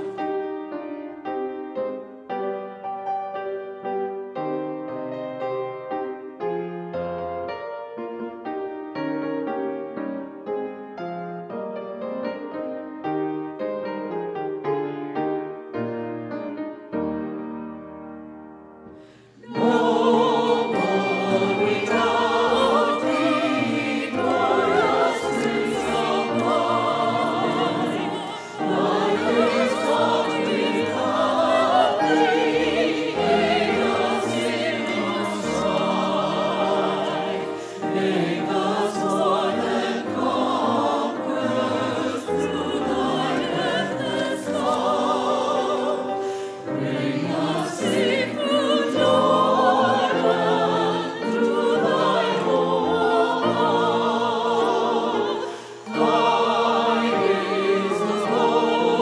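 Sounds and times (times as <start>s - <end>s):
choir singing a hymn: 0.0s - 2.1s, 19.0s - 59.0s.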